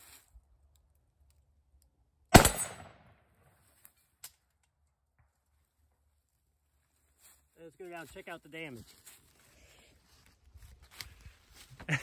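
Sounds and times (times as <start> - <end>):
gunshot bang: 2.4 - 3.1.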